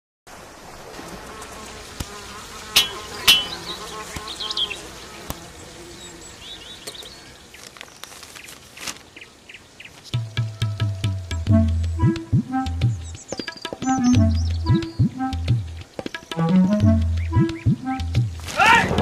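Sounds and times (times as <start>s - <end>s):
housefly buzzing: 1.0s - 7.2s.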